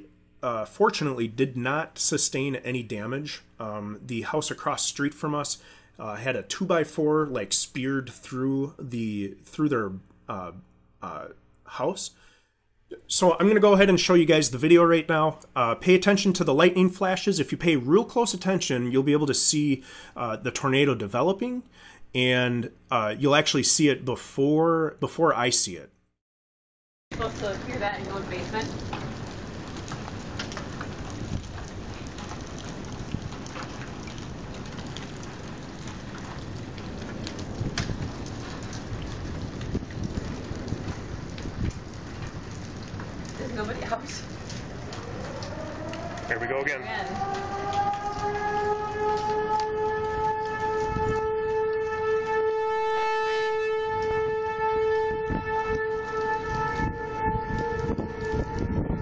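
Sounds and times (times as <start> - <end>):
rain falling: 0.0 - 12.3, 12.9 - 25.8, 27.1 - 59.0
wind gusts: 27.1 - 59.0
warning siren steady tone: 44.9 - 59.0.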